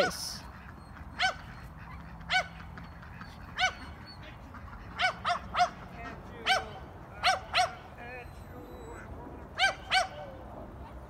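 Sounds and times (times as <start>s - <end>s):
dog barking: 2.3s - 2.6s, 3.6s - 4.0s, 5.0s - 5.8s, 6.4s - 7.8s, 9.6s - 10.3s.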